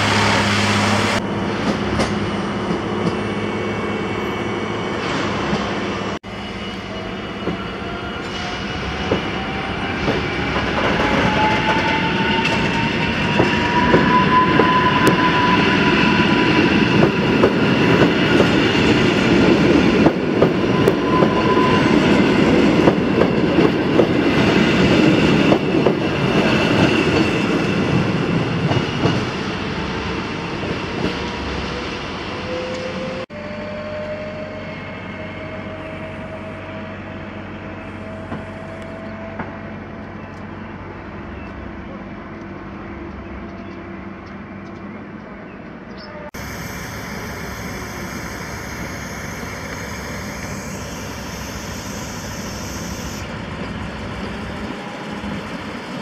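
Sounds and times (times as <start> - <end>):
electric train drive whining: 46.4 - 56.0.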